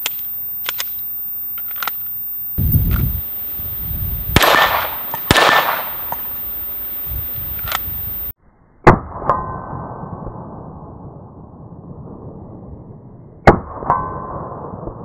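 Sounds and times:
pistol shots: 4.3s - 6.4s.

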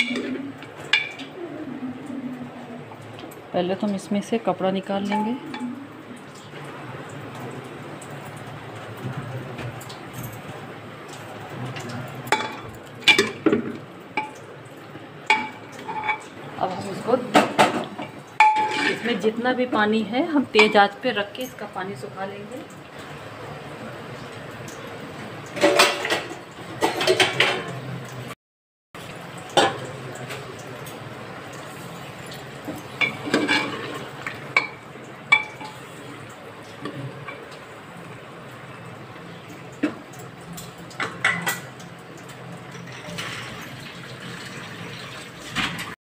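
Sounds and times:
spoon scraping metal pot: 18.4s - 19.2s.

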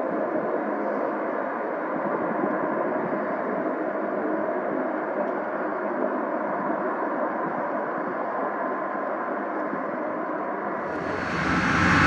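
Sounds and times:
jet engines idling: 10.8s - 12.0s.

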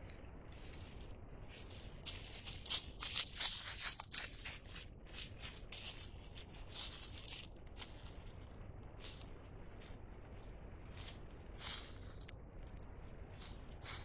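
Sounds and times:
dry leaves crunching under steps: 0.0s - 10.0s, 10.8s - 14.0s.

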